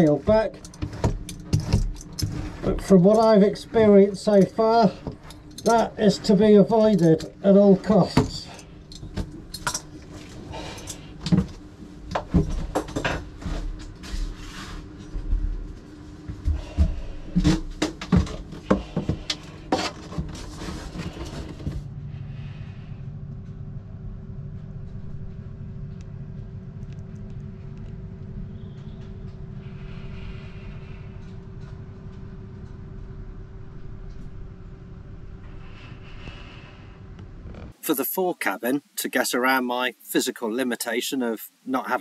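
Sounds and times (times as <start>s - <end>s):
steady low hum: 0.0s - 42.0s
sharp knocks and clatters: 0.1s - 6.0s.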